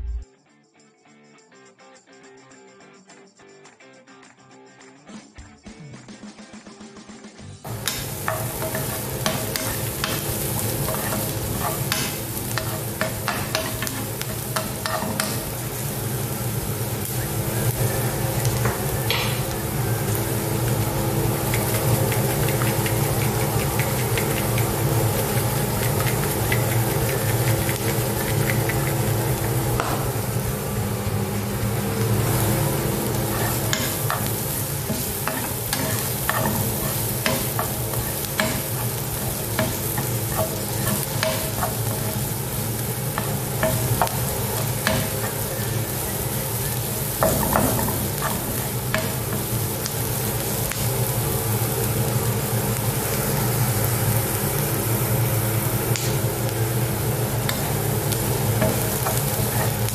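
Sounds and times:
onions sizzling in oil: 7.6 - 59.9
spatula scraping a pan: 8.0 - 15.4, 33.1 - 42.4.

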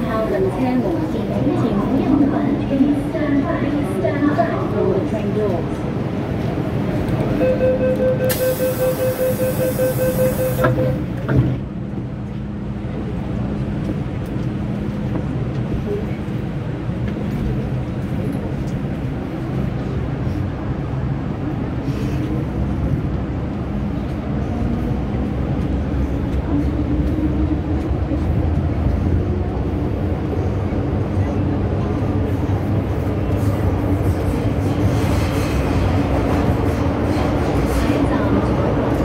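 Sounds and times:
train motors and wheels rumbling: 0.0 - 39.0
train doors shutting: 6.9 - 11.7
door-closing warning beeps: 7.4 - 11.0.

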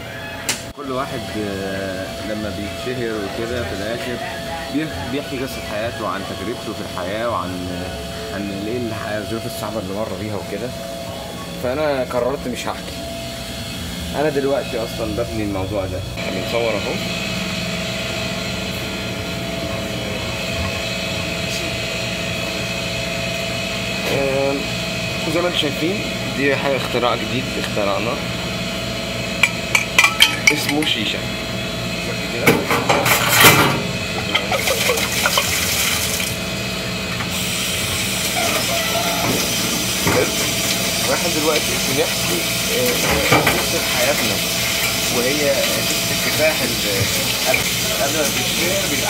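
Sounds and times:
machine humming and whirring: 0.0 - 49.0
metal clanking against sink: 29.4 - 31.1, 32.4 - 36.3, 39.2 - 41.2, 42.8 - 45.0
scrubbing metal pipe: 29.4 - 31.1, 32.8 - 48.4
water running into a metal sink: 32.4 - 49.0.

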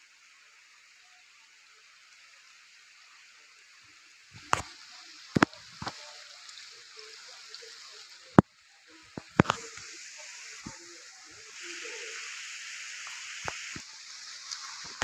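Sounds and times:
steady water hiss: 0.0 - 15.0
faint voices: 3.2 - 15.0.

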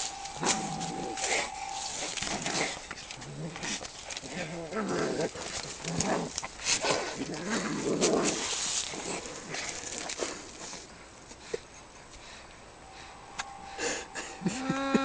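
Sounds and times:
cats growling and yowling: 0.0 - 6.4, 12.8 - 15.0.

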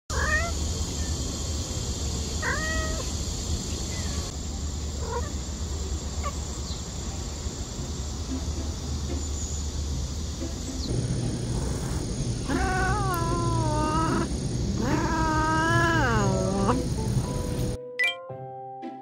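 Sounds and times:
cats meowing: 0.1 - 0.6, 2.4 - 3.2, 3.8 - 4.4, 5.0 - 5.4, 11.1 - 17.0.

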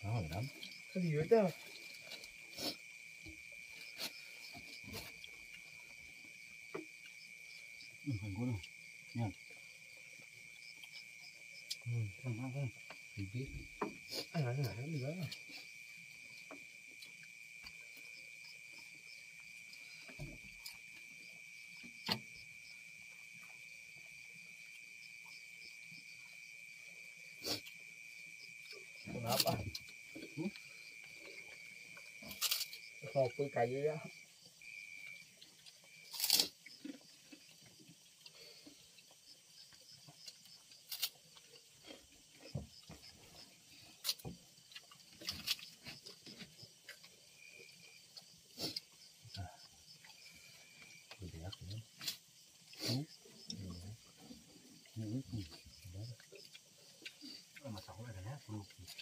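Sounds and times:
insects chirring: 0.0 - 59.0
crunch of fried crackers: 32.2 - 32.8, 36.1 - 37.5, 40.3 - 42.1.

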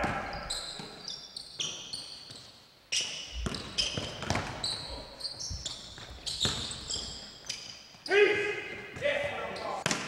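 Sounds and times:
basketballs bouncing on gym floor: 0.0 - 7.6, 8.2 - 10.0
high squeaks: 0.3 - 8.3.

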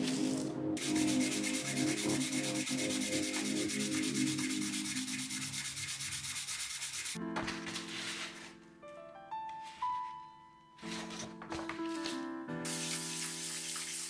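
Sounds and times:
metal rasping on wet sandpaper: 0.8 - 7.2.

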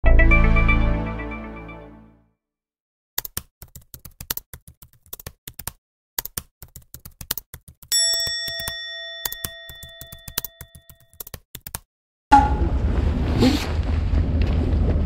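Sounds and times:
jingle chord: 0.0 - 2.2
keyboard typing clicks: 3.2 - 7.9, 8.5 - 11.9
bell-like ding: 8.0 - 10.6.

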